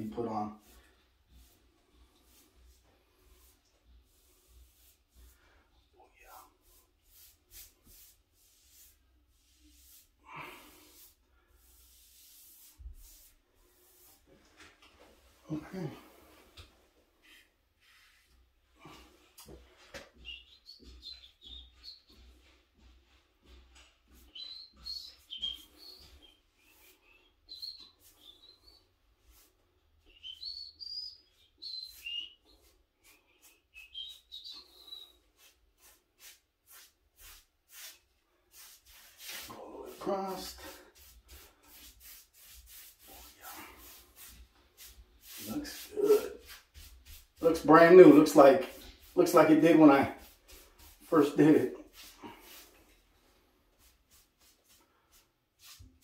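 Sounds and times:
paintbrush swishing on wood: 0.1s - 56.0s
high chirpy squeaks: 24.2s - 26.4s, 30.1s - 32.5s.

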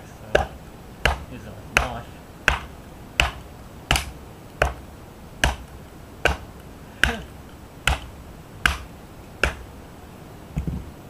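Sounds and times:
wood baton knocking on knife spine: 0.3s - 4.8s, 5.4s - 7.3s, 7.9s - 9.7s.

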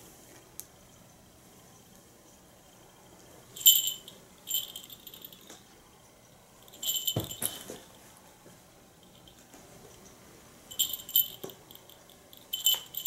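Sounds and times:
small jingle bell jingling: 3.6s - 5.6s, 6.6s - 8.0s, 9.0s - 9.4s, 10.7s - 13.0s.

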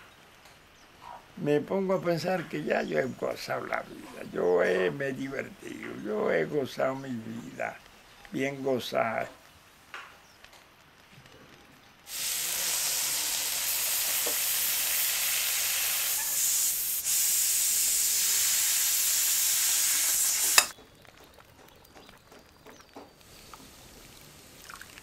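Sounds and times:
pot hissing over fire: 12.0s - 25.0s.

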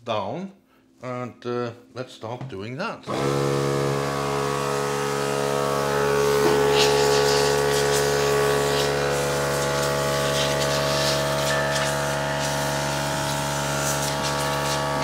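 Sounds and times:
air compressor motor hum: 3.1s - 15.0s
compressed air hisses: 6.3s - 15.0s.

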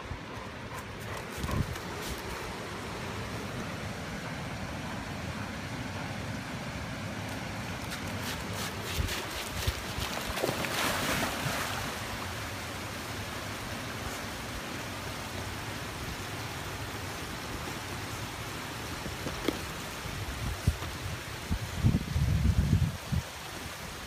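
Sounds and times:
river water rushing: 1.9s - 21.5s
dog splashing in water: 7.9s - 12.1s.

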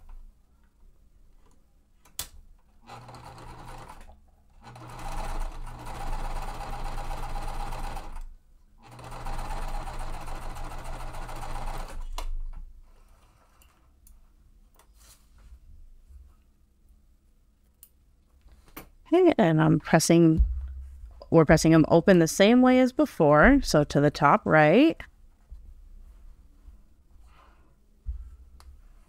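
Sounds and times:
sewing machine stitching: 2.8s - 12.2s.

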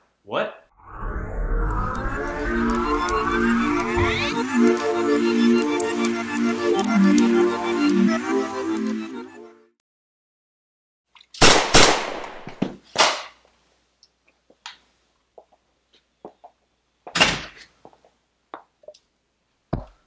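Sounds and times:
pistol shots: 11.4s - 13.3s.

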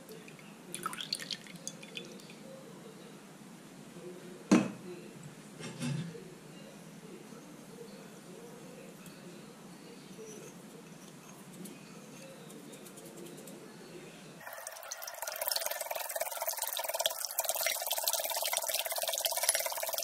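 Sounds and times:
whisk beating eggs in glass bowl: 14.4s - 20.0s.

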